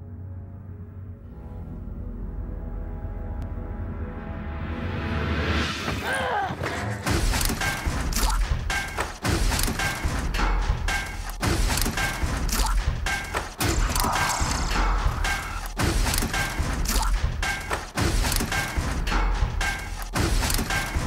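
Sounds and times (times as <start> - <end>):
music with pounding percussion: 6.6 - 21.0.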